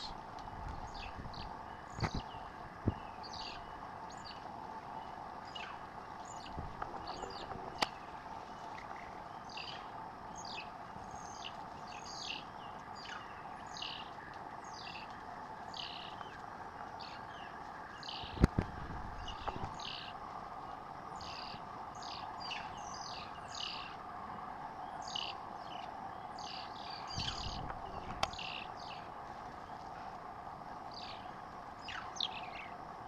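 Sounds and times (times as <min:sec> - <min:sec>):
steady background drone: 0:00.0 - 0:33.0
mongooses chirping: 0:05.0 - 0:15.1, 0:21.1 - 0:24.0, 0:24.8 - 0:29.8.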